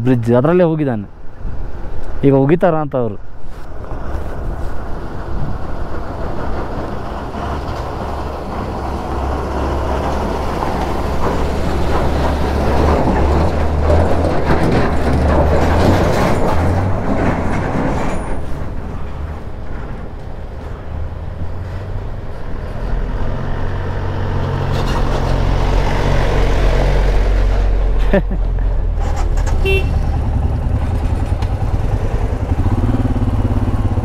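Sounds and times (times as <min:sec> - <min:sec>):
truck engine rumble and rattle: 0:03.0 - 0:34.0
motorcycle engine running: 0:29.2 - 0:34.0.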